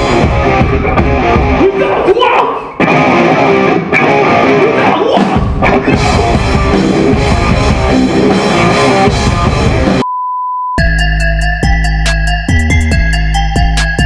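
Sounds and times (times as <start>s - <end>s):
hardcore band music: 0.0s - 10.0s, 10.8s - 14.0s
high beep tone: 10.0s - 13.0s.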